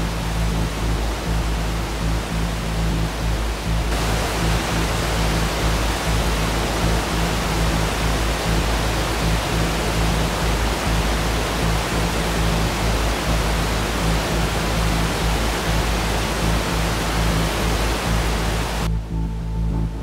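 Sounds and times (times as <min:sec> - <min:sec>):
waterfall roaring: 0:00.0 - 0:18.9
low background music: 0:00.0 - 0:20.0.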